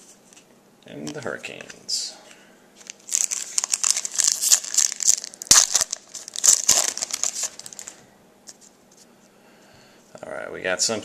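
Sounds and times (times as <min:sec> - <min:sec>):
foil wrapper tearing and crinkling: 0:02.8 - 0:08.0.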